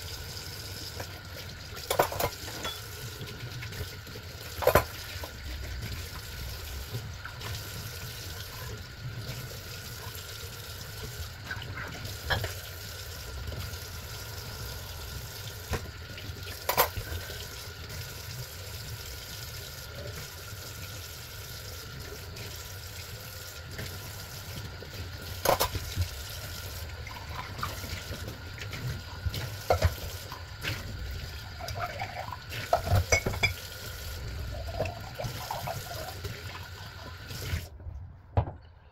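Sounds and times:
dishes clinking: 1.9s - 2.9s, 32.7s - 33.6s.

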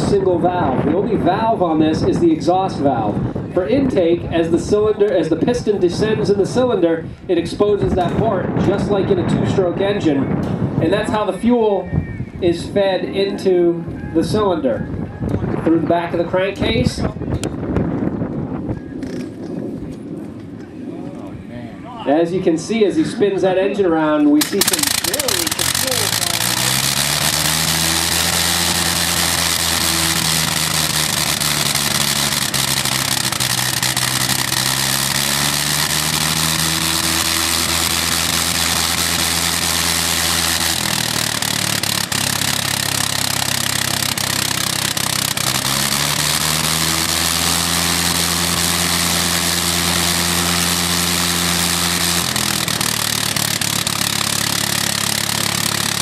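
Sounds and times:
rotary aero engine running: 14.8s - 21.5s, 24.4s - 56.0s.

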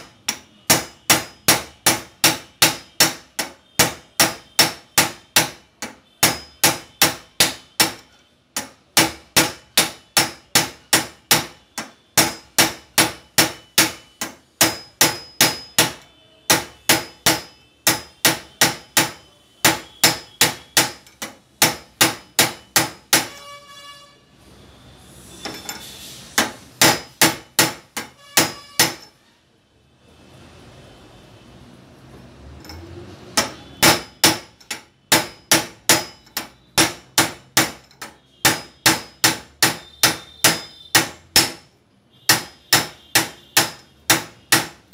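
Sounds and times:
hammer striking steel: 0.0s - 23.6s, 25.3s - 29.2s, 32.6s - 44.9s
rough metallic noise: 25.0s - 26.8s.

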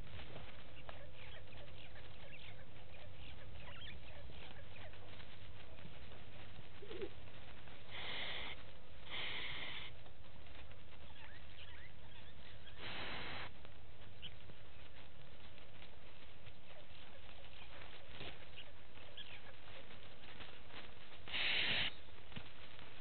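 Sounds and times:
faint bird chirps: 0.7s - 7.2s, 10.9s - 15.0s, 16.7s - 20.4s.

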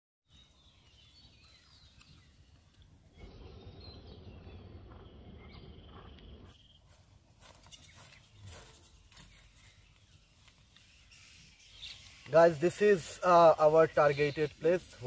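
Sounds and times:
bird chirps: 0.3s - 15.0s
low rumble: 3.1s - 6.5s.

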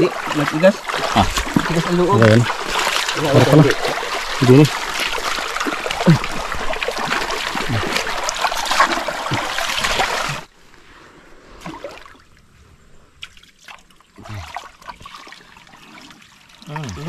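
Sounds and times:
river water rushing: 0.0s - 10.5s
water trickle: 0.0s - 10.5s, 13.2s - 17.0s.

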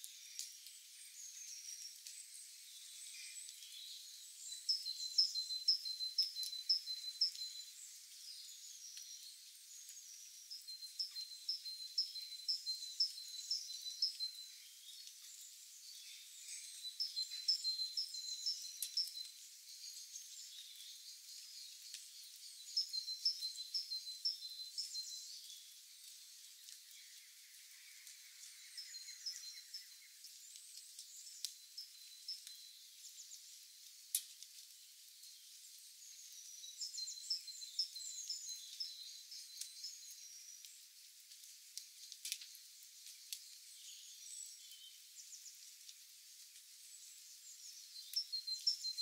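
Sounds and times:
faint bird chirps: 0.0s - 33.8s, 35.2s - 40.9s, 46.8s - 49.0s
faint high hiss: 0.0s - 49.0s.

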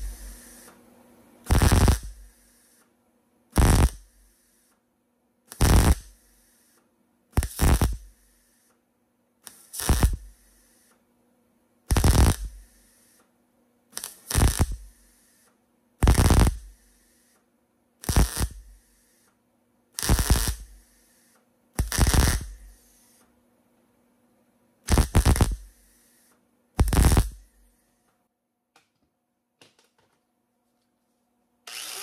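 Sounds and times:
short tack welding bursts: 0.0s - 0.8s, 1.4s - 2.8s, 3.6s - 4.8s, 5.5s - 6.8s, 7.4s - 8.7s, 9.4s - 11.0s, 11.9s - 13.2s, 13.9s - 17.4s, 18.0s - 19.3s, 20.0s - 23.2s, 24.9s - 28.0s.

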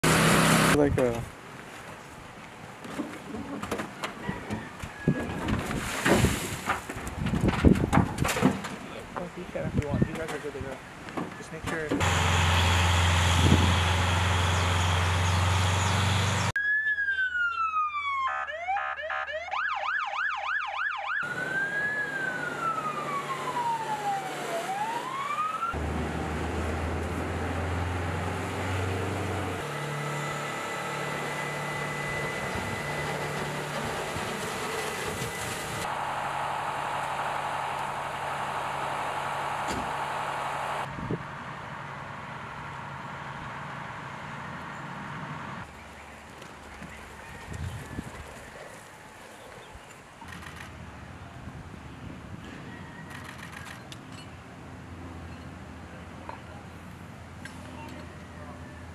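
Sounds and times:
truck engine running: 12.0s - 16.6s, 25.8s - 45.7s
fire truck siren: 12.0s - 41.0s.

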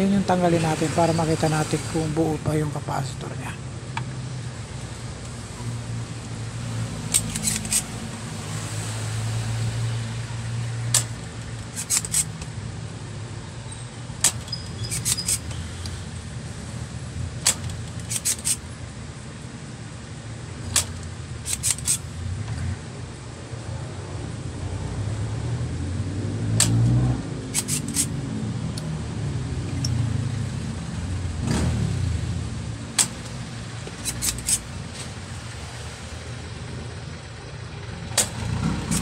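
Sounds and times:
steady low hum: 2.8s - 39.0s
desoldering pump clicking: 7.0s - 8.0s, 10.9s - 12.6s, 14.2s - 16.0s, 17.4s - 18.6s, 20.6s - 22.7s, 26.6s - 28.1s, 32.9s - 35.0s, 38.1s - 39.0s.

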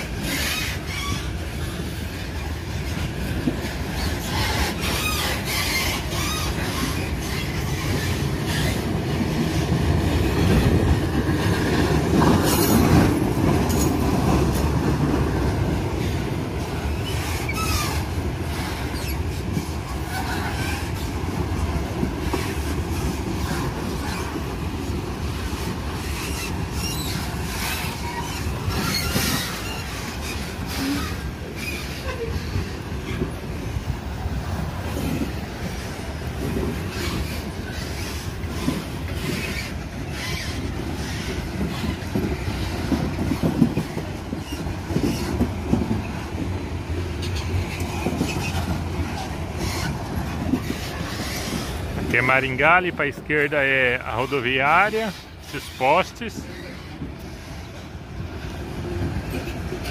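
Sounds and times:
train wheels rumbling on rail: 0.0s - 59.9s
wheel squeals: 3.9s - 8.9s, 11.4s - 14.0s, 16.8s - 21.1s, 25.6s - 33.3s, 36.5s - 46.3s, 47.2s - 52.5s.

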